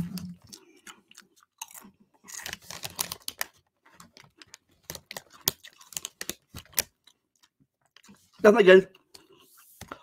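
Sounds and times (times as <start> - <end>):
man chewing with lip smacks: 0.0 - 2.4.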